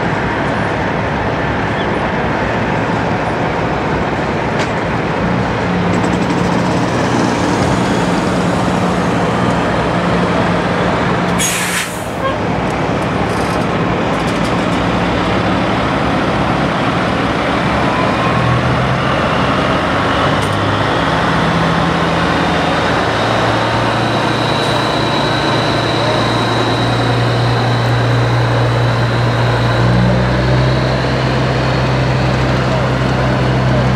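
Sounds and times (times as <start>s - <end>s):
truck diesel engines running: 0.0s - 33.9s
sharp hiss of air: 11.4s - 12.2s.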